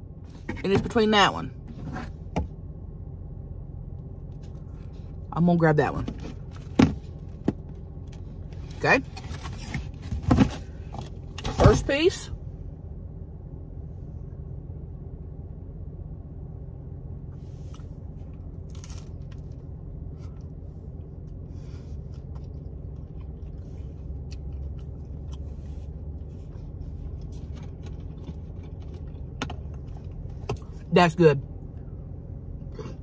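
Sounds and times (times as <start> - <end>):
steady low hum: 0.0 - 33.0
chewing crispy pizza: 17.7 - 30.8.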